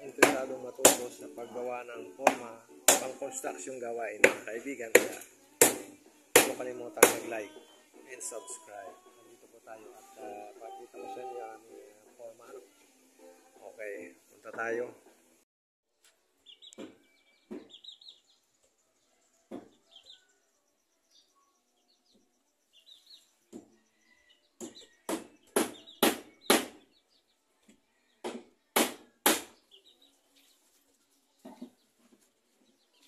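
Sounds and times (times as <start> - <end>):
birds chirping faintly: 16.0 - 33.0.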